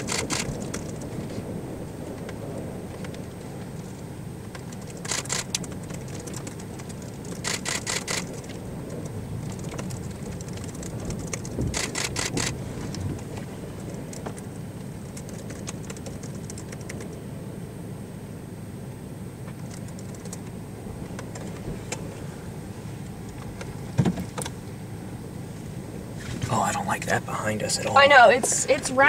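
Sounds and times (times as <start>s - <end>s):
steady low rumble: 0.0s - 29.0s
camera shutter clicking rapidly: 0.1s - 0.5s, 7.4s - 8.4s, 11.8s - 12.6s.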